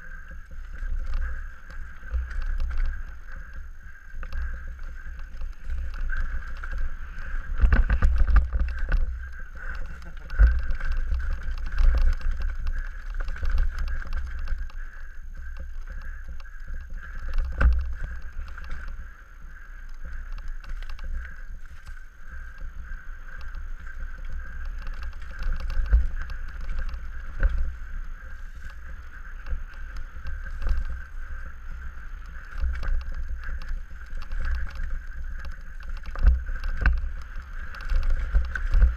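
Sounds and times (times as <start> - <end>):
tyres rumbling on dirt: 0.0 - 19.1
bike knocks and rattles: 0.0 - 38.9
wind on microphone: 0.0 - 38.9.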